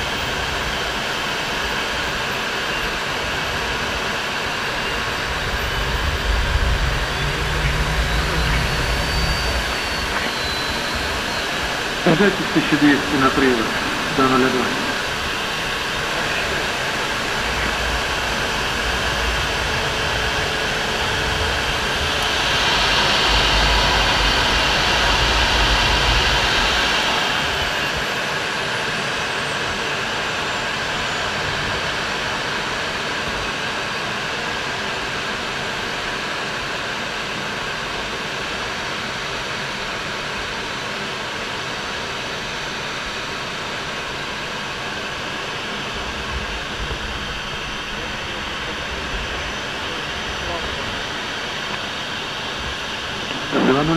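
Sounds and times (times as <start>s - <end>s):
fighter jet engines in flight: 0.0s - 53.9s
high jet whine: 0.0s - 53.9s.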